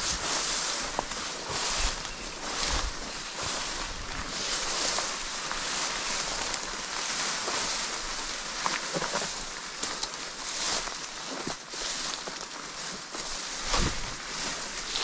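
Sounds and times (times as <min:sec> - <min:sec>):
footsteps swishing through grass: 0:00.0 - 0:15.0
twigs snapping underfoot: 0:08.1 - 0:12.6.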